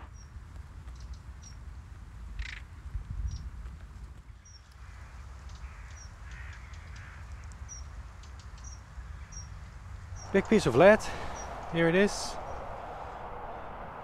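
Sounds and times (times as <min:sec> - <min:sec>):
low wind rumble: 0:00.0 - 0:14.0
birds chirping: 0:04.4 - 0:14.0
harsh bird call: 0:10.2 - 0:14.0.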